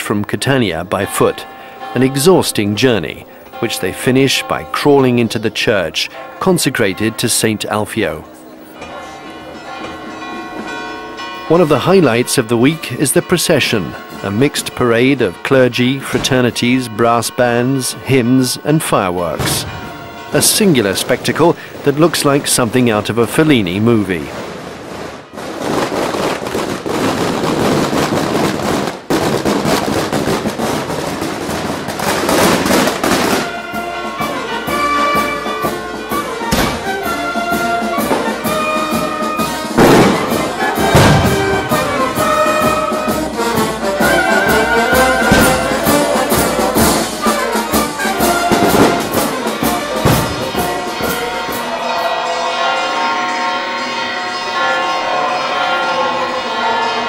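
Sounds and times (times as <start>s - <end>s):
street brass band playing: 9.0s - 57.0s
sharp bangs: 19.2s - 23.1s, 24.2s - 51.7s
fireworks crackling and hissing: 24.3s - 33.5s
bass drum strokes: 37.8s - 51.2s.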